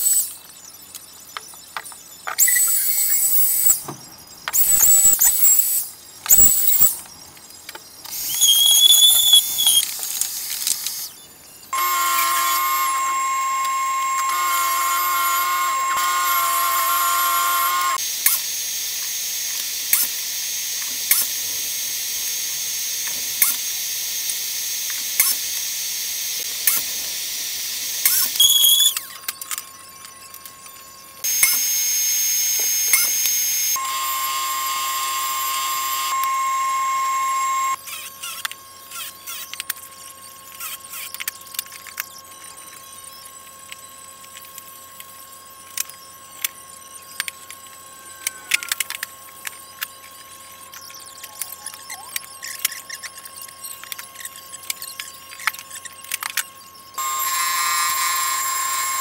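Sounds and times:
router high-pitched whine: 0.0 - 59.0
miter saw motor running: 11.7 - 29.7, 31.2 - 38.6, 57.0 - 59.0.

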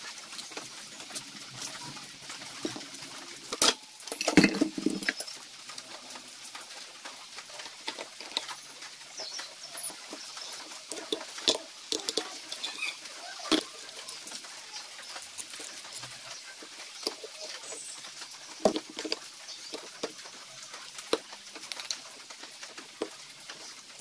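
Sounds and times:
metal engine parts clinking: 3.5 - 5.4.

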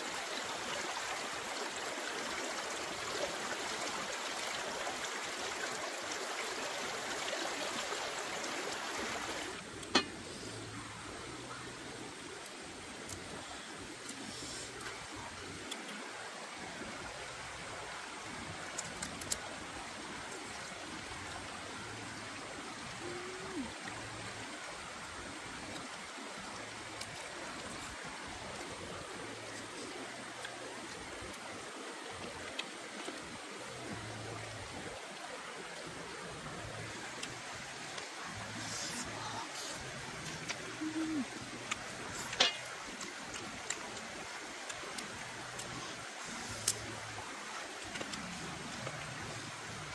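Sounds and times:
stream flowing: 0.0 - 49.9.

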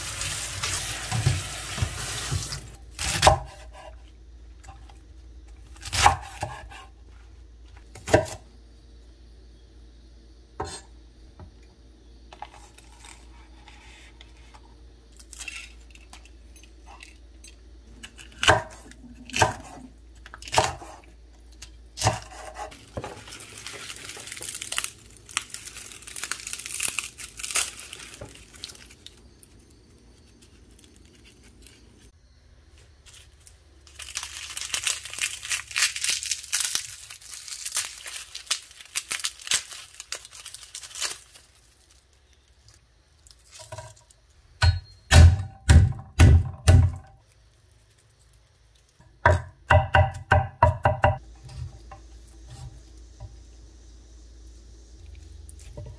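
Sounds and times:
garlic skins crackling and tearing: 21.4 - 32.1, 33.0 - 44.3, 47.2 - 49.0.

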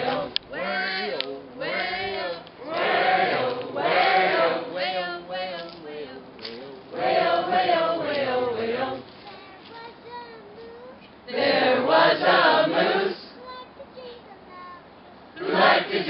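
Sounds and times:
group singing: 0.0 - 9.1, 11.3 - 13.3, 15.4 - 16.0.

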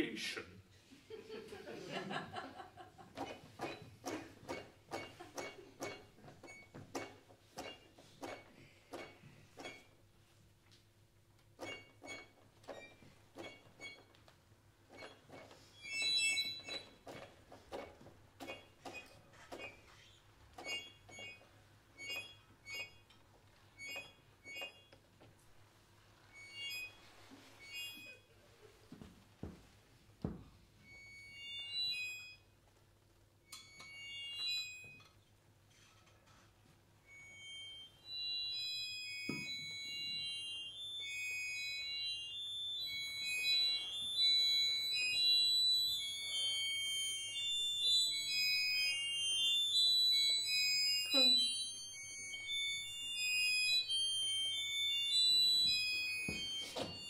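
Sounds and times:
short high-pitched tones: 37.0 - 57.0.

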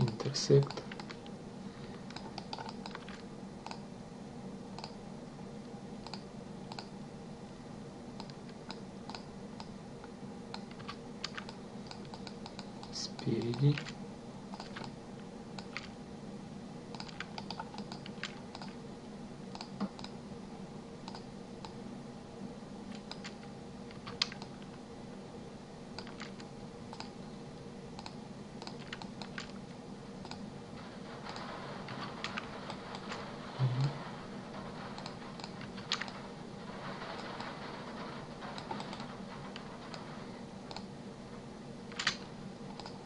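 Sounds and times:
keyboard and mouse clicks: 0.0 - 1.3, 2.1 - 3.8, 4.8 - 5.0, 6.0 - 6.9, 8.2 - 9.8, 10.5 - 15.0, 15.6 - 15.9, 16.9 - 18.8, 19.5 - 20.2, 21.0 - 21.8, 22.9 - 24.7, 26.0 - 27.2, 28.0 - 29.6, 30.2 - 30.4, 35.0 - 36.2, 40.7 - 40.9, 41.9 - 43.0
steady low hum: 0.0 - 43.0.

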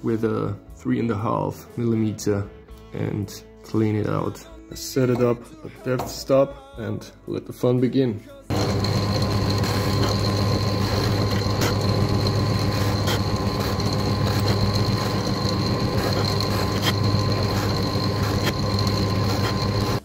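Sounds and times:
drill bit clicks: 8.5 - 20.0
electric drill whining: 8.5 - 20.0.

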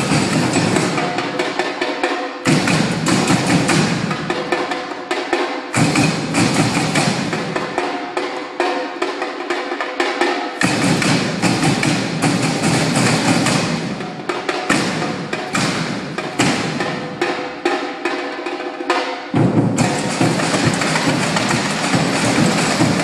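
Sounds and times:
snare and bass drums playing: 0.0 - 8.4, 10.2 - 23.0
clicking stick pattern: 19.4 - 23.0.

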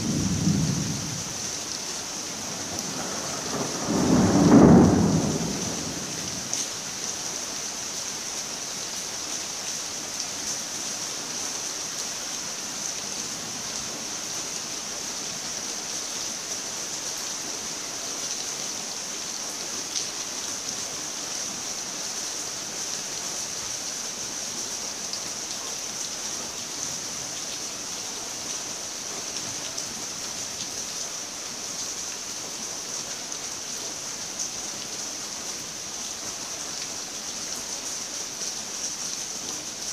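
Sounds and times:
rain drops ticking: 0.0 - 6.8
steady rain hiss: 0.0 - 39.9.

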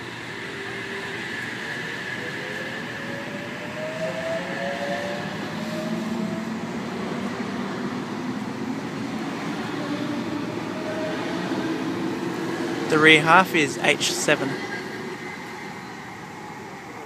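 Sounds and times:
train traction motor whine: 0.0 - 17.0
train wheels rumbling on rails: 0.0 - 17.0.

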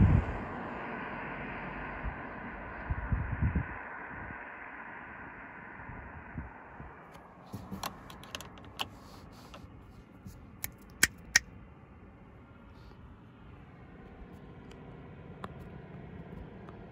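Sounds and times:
sharp clicks and taps: 7.5 - 9.6, 10.6 - 11.4.

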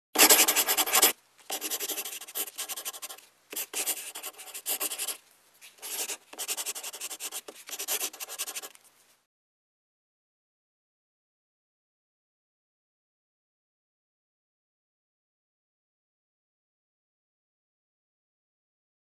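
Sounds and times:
pen scribbling on paper: 0.2 - 5.2, 5.8 - 8.7.

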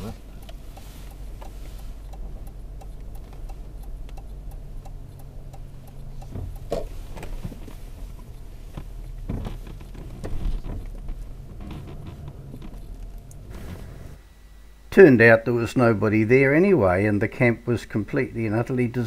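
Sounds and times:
turn signal ticking: 0.0 - 14.2
low engine hum: 0.0 - 14.3.

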